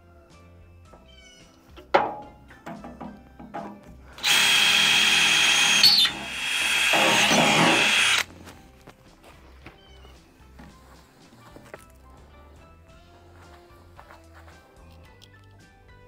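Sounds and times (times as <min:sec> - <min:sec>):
soft background music: 0:00.0 - 0:16.0
electric drill boring into steel: 0:04.2 - 0:08.3.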